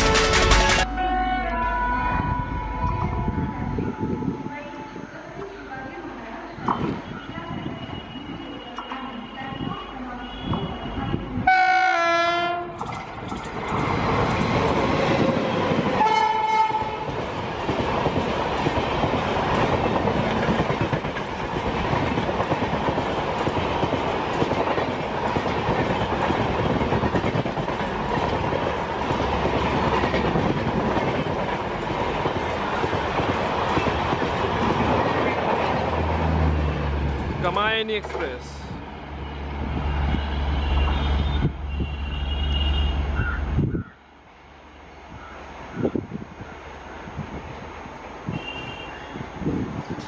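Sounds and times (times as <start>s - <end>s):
train wheels rumbling on rails: 0.0s - 0.9s, 12.6s - 41.7s, 45.1s - 50.0s
locomotive horn blasts: 9.1s - 12.8s, 16.0s - 17.1s, 40.0s - 43.1s, 48.3s - 49.2s.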